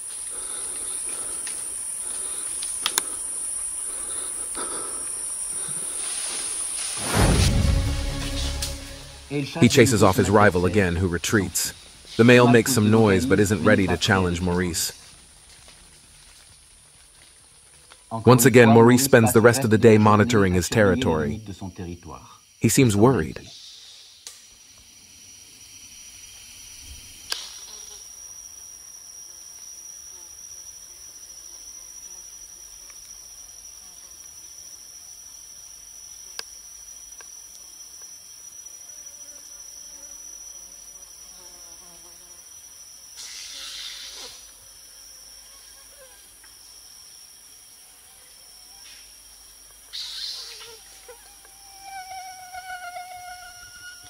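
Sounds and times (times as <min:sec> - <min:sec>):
faint hiss: 0:00.0 - 0:15.3, 0:21.6 - 0:28.4, 0:43.0 - 0:44.8
insects droning: 0:00.0 - 0:54.0
sharp snap: 0:27.3 - 0:27.7.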